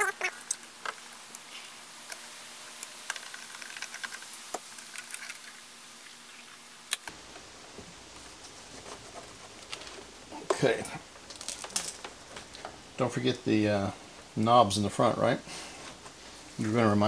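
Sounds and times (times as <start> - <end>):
vacuum tubes clicking and scraping: 0.4 - 7.4.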